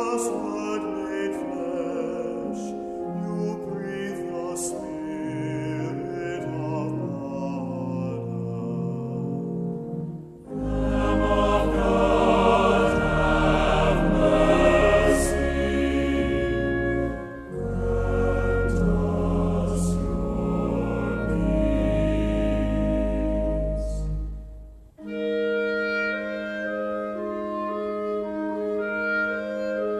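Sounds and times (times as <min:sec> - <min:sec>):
choir singing sacred music: 0:00.0 - 0:24.6.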